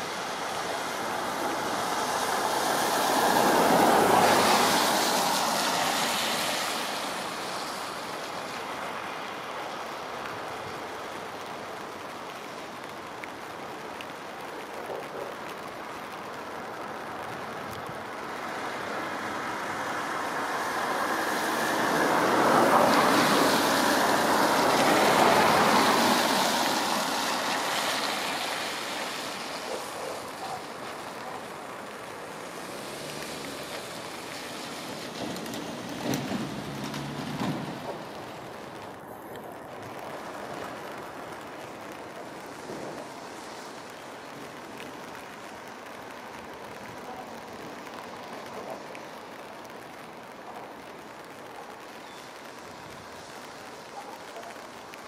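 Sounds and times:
outdoor background noise: 0.0 - 55.0
vehicle passing by: 18.4 - 38.8.

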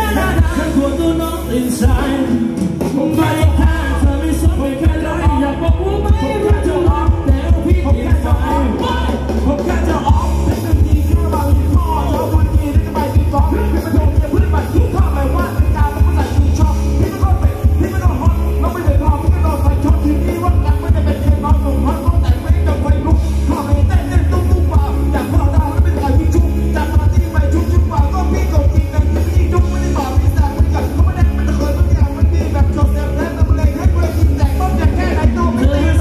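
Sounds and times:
dance band playing over a pa: 0.0 - 36.0
heavy bass beat: 0.0 - 36.0
person singing: 0.0 - 36.0.

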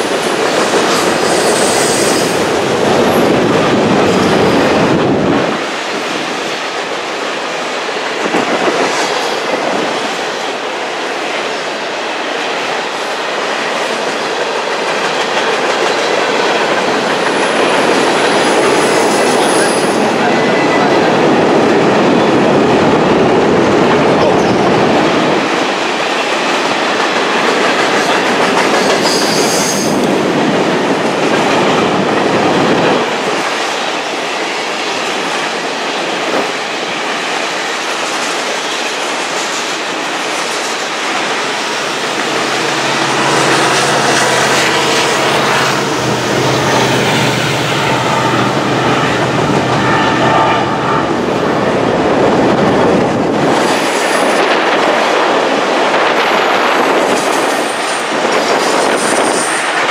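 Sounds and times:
freight cars rumbling past: 41.0 - 53.1.

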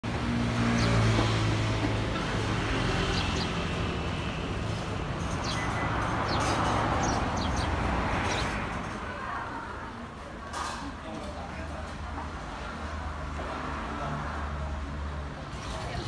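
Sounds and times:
vehicle engine humming: 0.0 - 9.0
passing traffic: 0.0 - 16.0.

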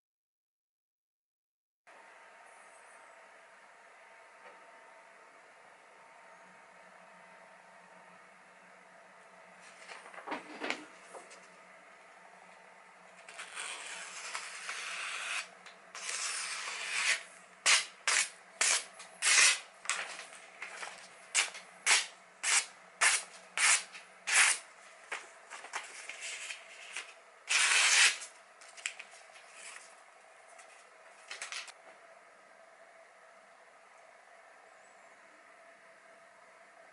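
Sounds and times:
knife slicing paper: 13.3 - 19.7, 21.8 - 24.6, 25.9 - 29.8
paper rustling: 18.1 - 31.7.

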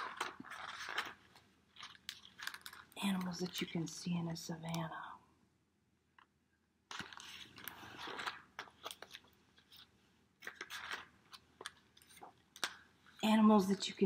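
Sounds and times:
book pages rustling: 0.0 - 3.9, 6.9 - 14.0.

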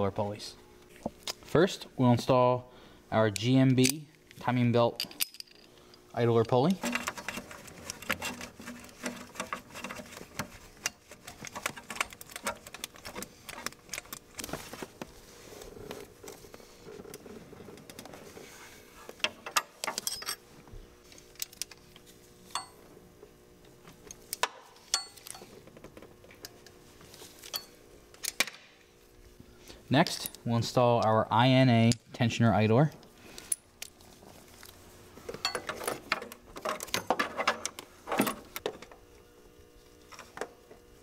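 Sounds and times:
metallic clicks and clinks: 5.0 - 5.7.

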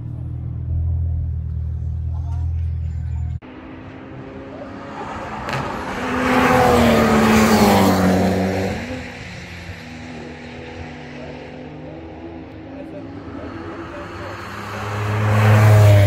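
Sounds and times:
race car passing by: 3.4 - 16.0.

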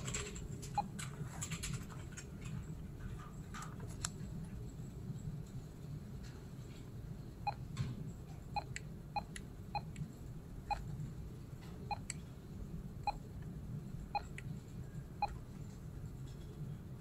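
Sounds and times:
short key-press beeps: 11.9 - 12.2, 14.2 - 14.4.

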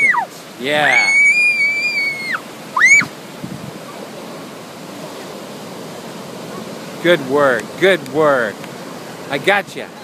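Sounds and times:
boy shouting: 0.0 - 3.1
boy yelping: 0.0 - 3.1
ocean surf: 0.0 - 10.0.

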